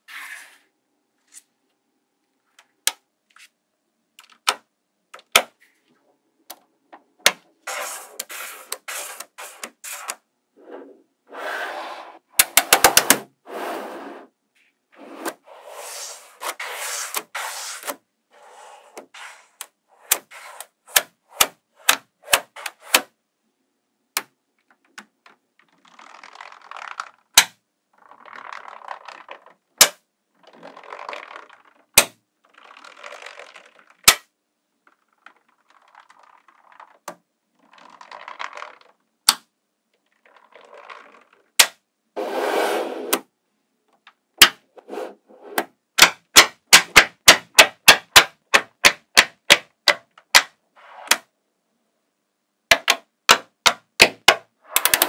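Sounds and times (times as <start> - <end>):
balls scraping along table: 0.0 - 0.7, 7.6 - 23.1, 40.1 - 41.5, 42.2 - 43.3, 44.7 - 45.7, 50.8 - 51.3, 54.6 - 55.0.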